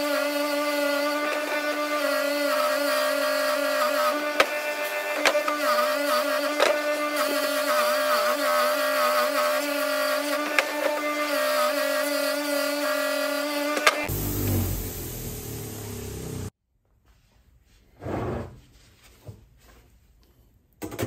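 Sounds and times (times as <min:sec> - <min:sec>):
bench grinder motor hum: 0:00.0 - 0:16.5.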